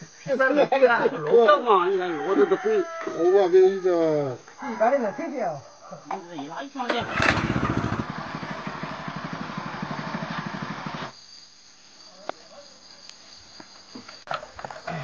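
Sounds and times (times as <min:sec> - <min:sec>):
crickets chirping: 0:00.0 - 0:15.0
small petrol engine putter: 0:06.9 - 0:11.1.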